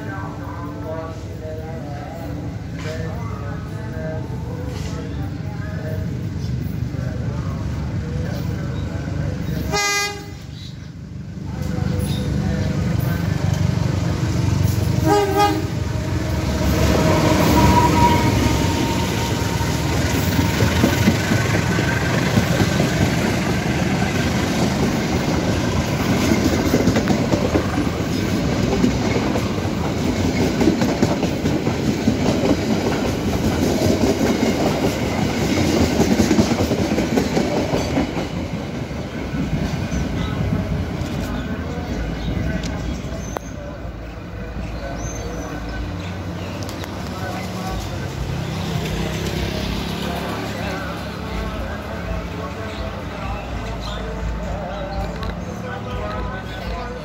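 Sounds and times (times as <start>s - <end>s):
train horn blast: 9.7s - 10.5s, 14.9s - 20.3s
train wheels clickety-clack: 19.4s - 41.4s.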